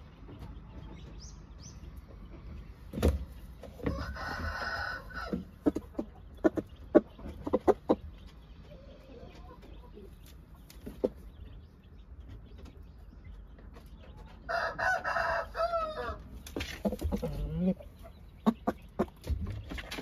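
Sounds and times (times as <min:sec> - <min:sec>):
rooster crowing: 0:03.8 - 0:05.4, 0:14.5 - 0:16.2.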